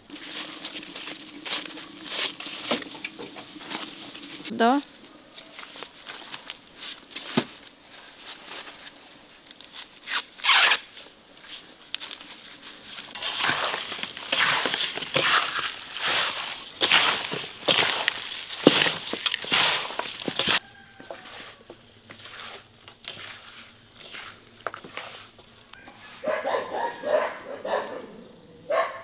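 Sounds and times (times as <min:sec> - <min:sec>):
hands squelching raw meat: 0:13.2 - 0:20.6.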